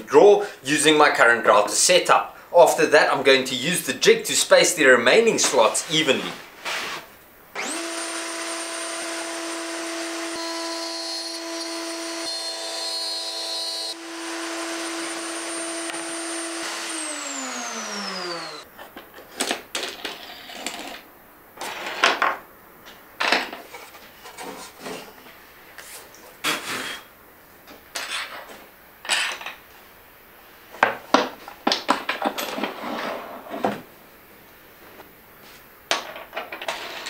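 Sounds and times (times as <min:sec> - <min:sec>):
router high-pitched whine: 0:07.6 - 0:18.6.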